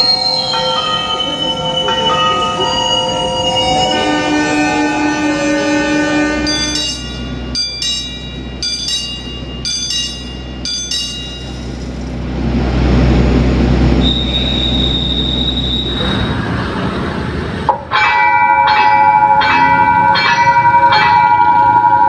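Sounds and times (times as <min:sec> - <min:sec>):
signal bell ringing: 0:00.0 - 0:04.2, 0:06.5 - 0:12.0, 0:17.9 - 0:22.0
steady high squeal: 0:00.0 - 0:04.8, 0:14.0 - 0:17.2
low train rumble: 0:00.0 - 0:22.0.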